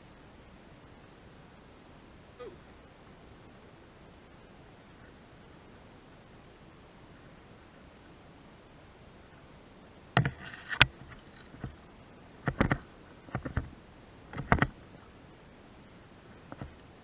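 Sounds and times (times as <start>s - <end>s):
hard objects knocking and clunking: 14.4s - 14.7s.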